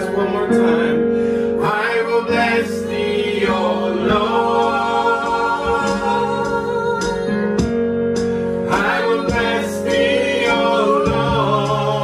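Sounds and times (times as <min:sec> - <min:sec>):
sustained keyboard chords: 0:00.0 - 0:12.0
voices singing gospel: 0:00.0 - 0:12.0.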